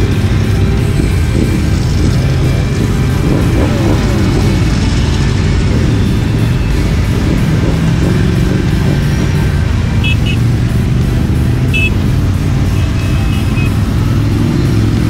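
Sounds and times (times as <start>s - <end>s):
motorcycle engines rumbling: 0.0s - 15.0s
music: 0.0s - 15.0s
short high beeps: 10.0s - 10.4s.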